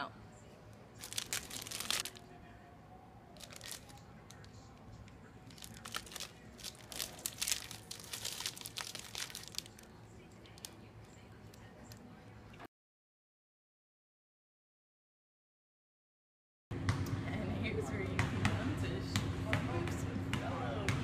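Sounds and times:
wrapper crinkling: 0:01.0 - 0:02.2, 0:03.4 - 0:04.5, 0:05.4 - 0:10.7.

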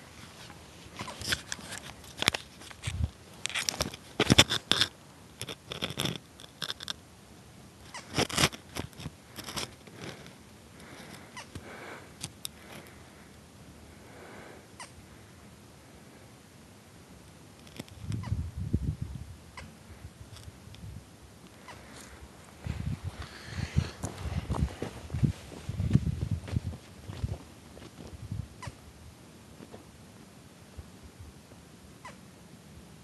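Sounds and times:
faint outdoor background: 0:00.0 - 0:33.0
camera scraping on gravel: 0:00.2 - 0:07.0, 0:07.9 - 0:13.0.

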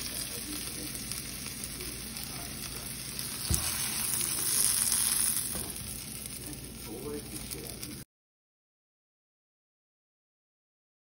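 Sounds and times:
food sizzling in a pan: 0:00.0 - 0:08.0.

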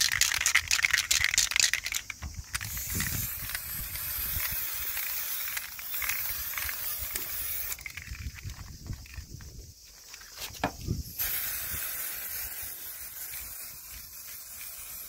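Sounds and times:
spray can hissing: 0:00.0 - 0:09.4, 0:10.1 - 0:15.0
spray can mixing ball rattling: 0:00.0 - 0:09.4, 0:10.0 - 0:15.0.

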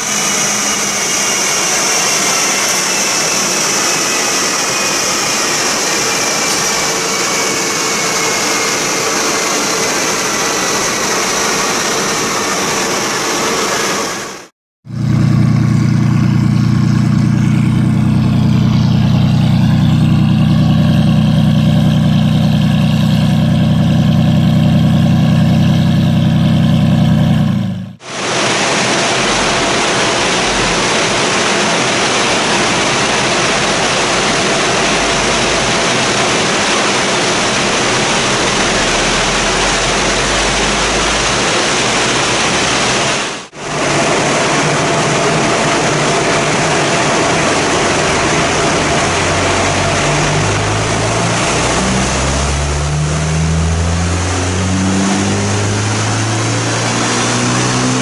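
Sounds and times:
car engine running on a dynamometer: 0:00.0 - 0:58.0
sports car engine idling: 0:14.9 - 0:28.0.

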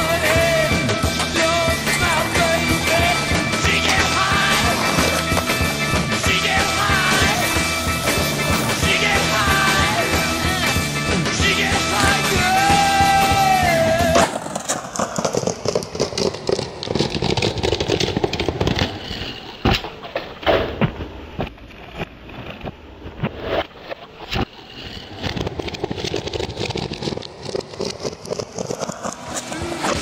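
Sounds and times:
rock music: 0:00.0 - 0:14.3
skateboard knocking and clacking: 0:00.0 - 0:30.0
skateboard wheels rolling on concrete: 0:00.0 - 0:30.0.

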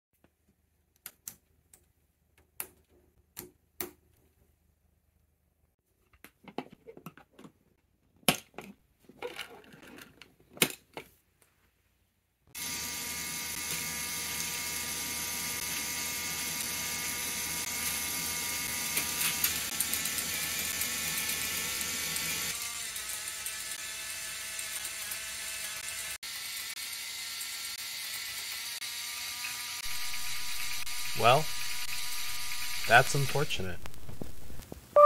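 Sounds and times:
coaster motor whirring: 0:12.5 - 0:34.6.

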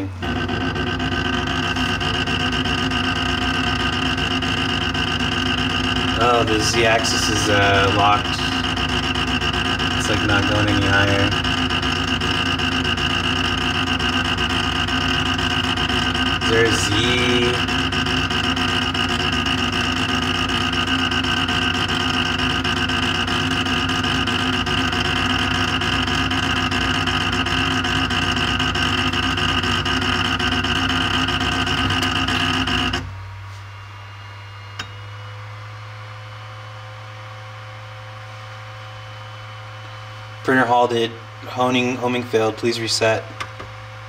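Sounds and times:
stepper motor grinding buzz: 0:00.0 - 0:33.2
printer low hum: 0:00.0 - 0:35.2.

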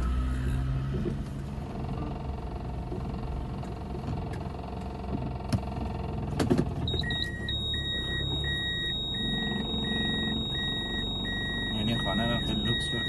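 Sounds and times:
electronic warning beep: 0:06.9 - 0:13.0.

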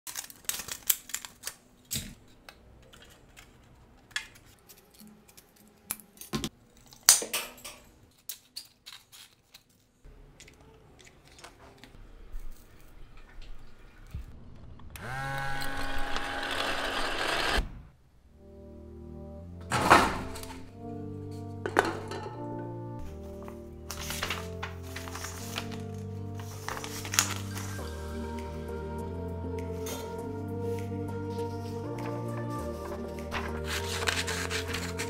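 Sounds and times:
aluminium crinkling: 0:00.0 - 0:14.9, 0:19.7 - 0:27.9, 0:31.4 - 0:35.0
small electric motors whirring: 0:15.0 - 0:17.6.

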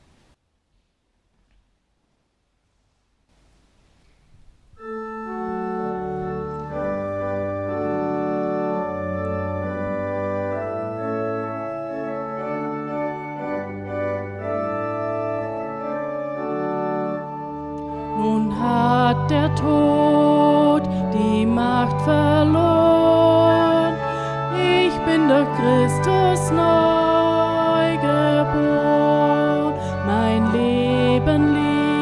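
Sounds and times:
church organ chords: 0:04.8 - 0:32.0.

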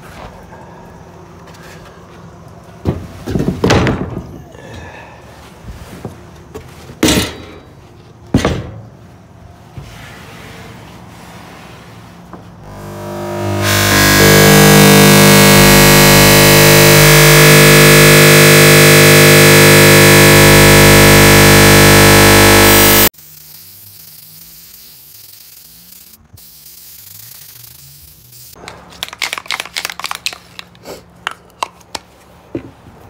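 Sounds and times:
circular saw motor running: 0:12.6 - 0:23.4.

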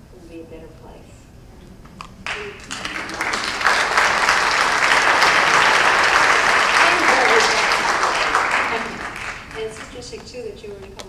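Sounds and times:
audience applauding: 0:02.2 - 0:10.1.

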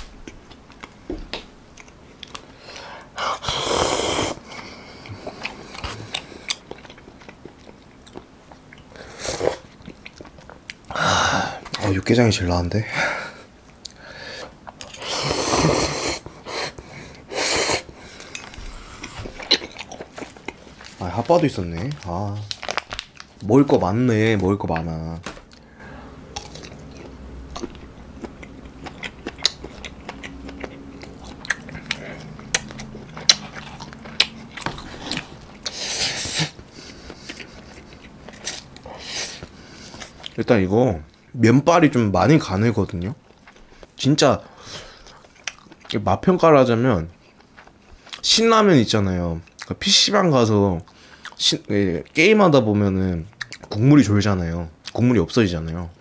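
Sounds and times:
person chewing: 0:00.0 - 0:01.0, 0:01.7 - 0:11.0, 0:13.6 - 0:23.4, 0:25.5 - 0:40.4, 0:44.6 - 0:46.0, 0:47.1 - 0:48.2, 0:50.9 - 0:51.4, 0:53.3 - 0:53.8
person slurping noodles: 0:03.2 - 0:04.5, 0:09.0 - 0:09.7, 0:14.9 - 0:17.9.

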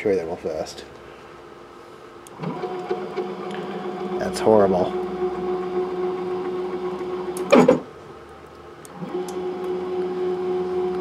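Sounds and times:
stepper motor whine: 0:02.3 - 0:07.8, 0:08.9 - 0:11.0.

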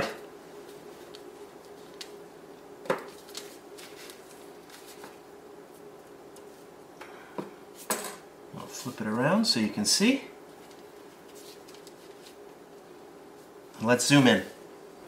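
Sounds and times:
faint steady hum: 0:00.0 - 0:15.0
fingers tapping and rustling paper: 0:10.6 - 0:12.9.

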